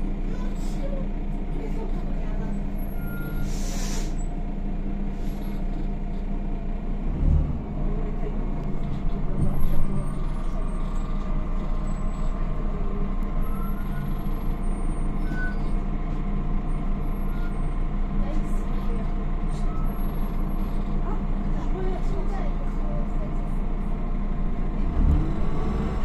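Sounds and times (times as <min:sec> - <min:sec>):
bus engine droning: 0:00.0 - 0:26.0
short air hiss: 0:03.4 - 0:04.2.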